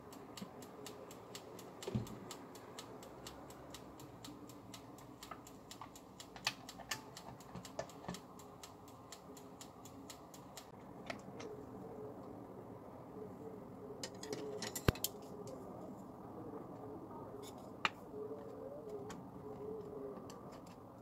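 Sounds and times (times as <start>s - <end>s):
mechanical timer ticking: 0.0s - 10.8s.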